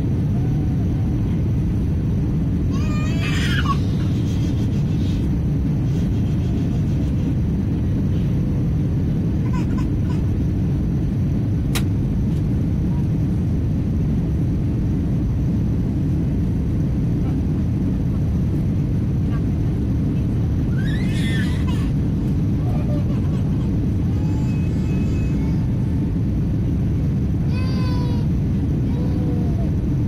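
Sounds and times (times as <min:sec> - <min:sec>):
airliner cabin engine rumble: 0:00.0 - 0:30.0
sharp click: 0:11.7 - 0:11.9.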